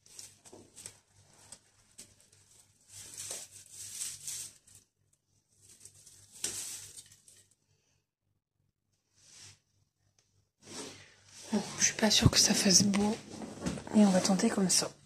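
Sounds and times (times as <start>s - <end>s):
fabric rustling: 0.0s - 7.6s.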